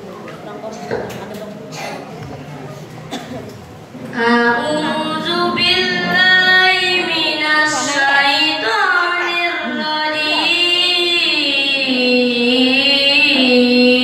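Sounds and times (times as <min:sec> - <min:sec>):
boy chanting: 0:04.1 - 0:14.0.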